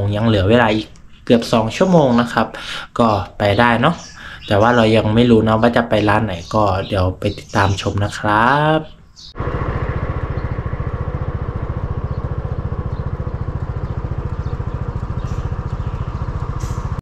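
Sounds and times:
vehicle engine idling: 9.3s - 17.0s.

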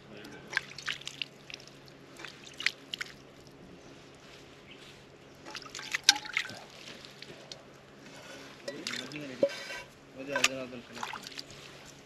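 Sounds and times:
water dripping and trickling: 0.4s - 3.6s, 5.4s - 7.7s, 10.4s - 11.6s.

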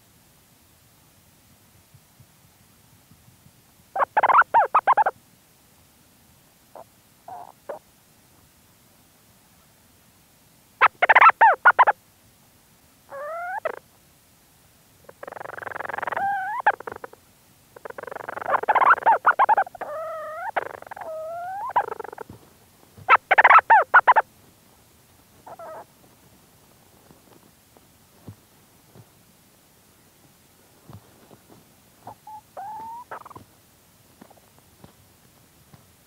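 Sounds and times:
seabird rapid chattering pulses: 4.0s - 5.1s, 10.8s - 12.0s, 17.8s - 22.3s, 23.1s - 24.2s, 25.4s - 25.9s, 32.0s - 33.4s.

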